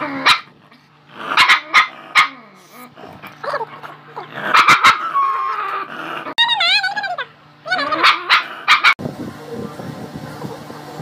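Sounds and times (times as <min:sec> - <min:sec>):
dog barking: 0:01.4 - 0:02.4, 0:04.5 - 0:05.0, 0:07.8 - 0:09.0
dog whining: 0:01.8 - 0:09.0.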